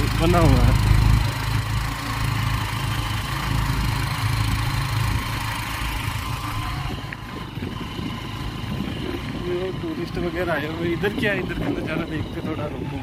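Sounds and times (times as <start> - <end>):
motorcycle engine droning: 0.0 - 13.0.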